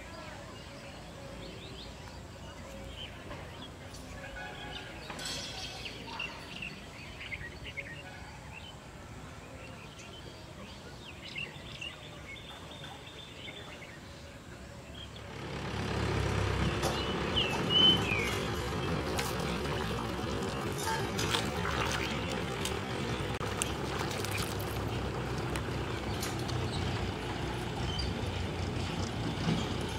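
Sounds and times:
small birds chirping: 16.4 - 29.9.

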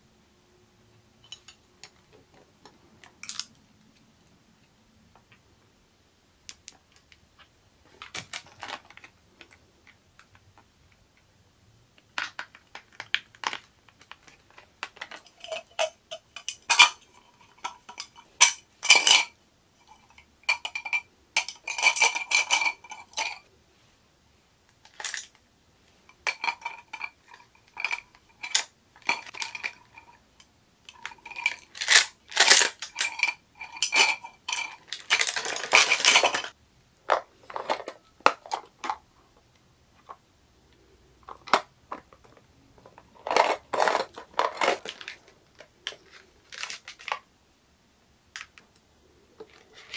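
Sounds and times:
plastic items clinking on a tumbler: 7.9 - 10.6, 12.0 - 23.5, 24.8 - 25.4, 26.2 - 39.1, 41.2 - 47.2.

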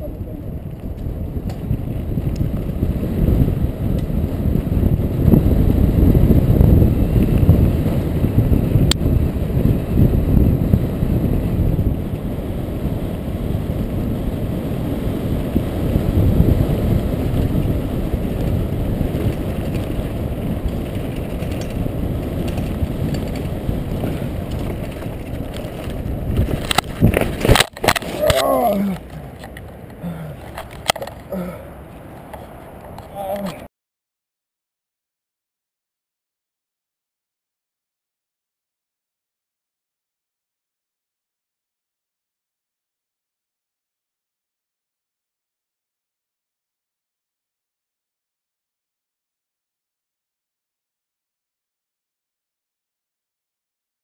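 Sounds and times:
bike tyres rumbling on dirt trail: 0.0 - 33.7
wind buffeting microphone: 0.0 - 33.7.

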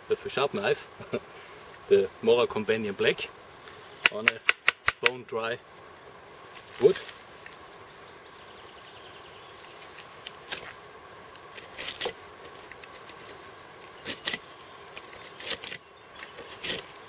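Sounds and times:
knife scraping wood: 11.4 - 17.0.

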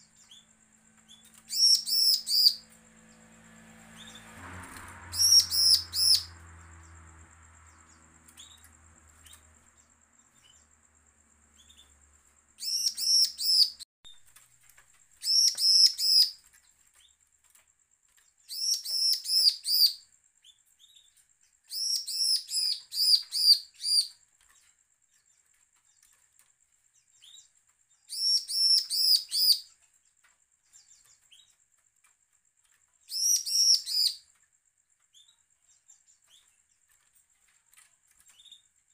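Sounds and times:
bird chirping rapidly: 0.0 - 10.8, 11.5 - 12.0, 12.6 - 13.8, 15.2 - 16.4, 18.4 - 20.0, 21.7 - 24.2, 28.1 - 29.7, 33.1 - 34.2.

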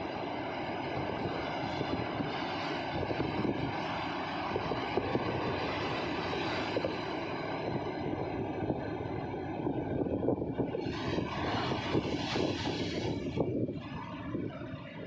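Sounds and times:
sea surf breaking on rocks: 4.0 - 7.4, 10.6 - 13.6.

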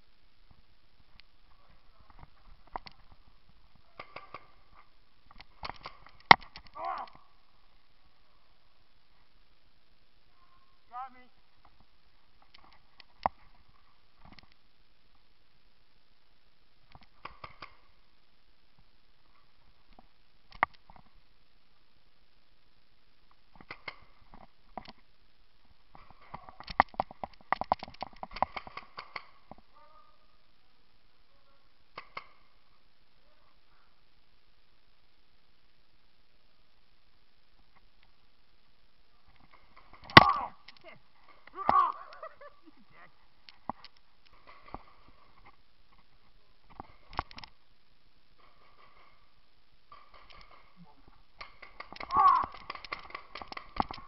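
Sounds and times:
paintball markers firing: 51.4 - 54.0.

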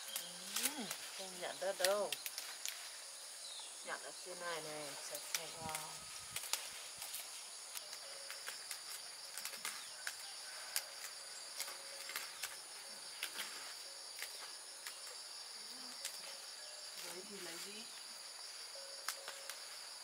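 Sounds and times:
leafy greens snapping and rustling: 0.0 - 3.1, 4.3 - 20.0
insects chirring: 0.0 - 20.0.

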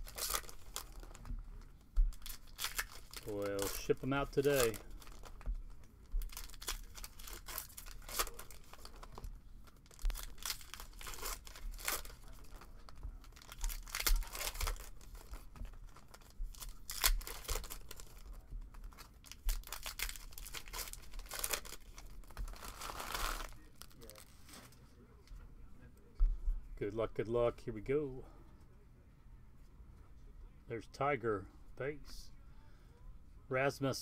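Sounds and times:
foil wrappers tearing and crinkling: 0.0 - 1.2, 2.1 - 5.4, 6.2 - 24.6.

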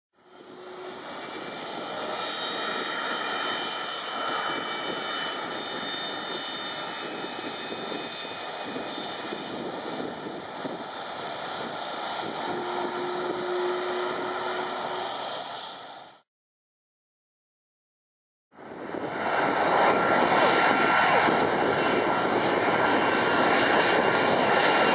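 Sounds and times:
jet engine roar with fan whine: 0.2 - 16.2, 18.5 - 24.9
lower steady tone: 12.5 - 15.4.

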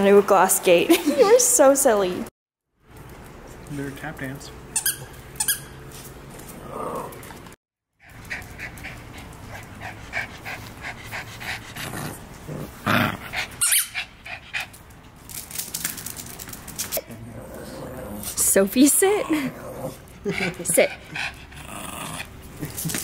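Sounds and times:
dog panting: 8.0 - 12.4, 13.2 - 14.8, 19.9 - 22.4.

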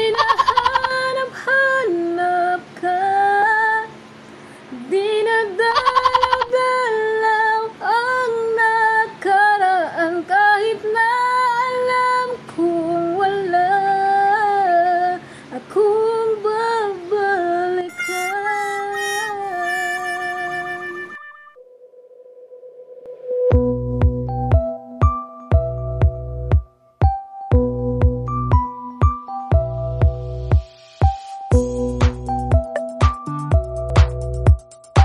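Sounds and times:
woman singing a slow melody: 0.0 - 4.1, 4.7 - 21.0.

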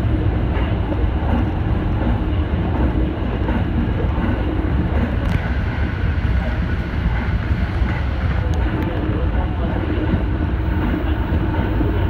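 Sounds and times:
electric train running: 0.0 - 12.0.

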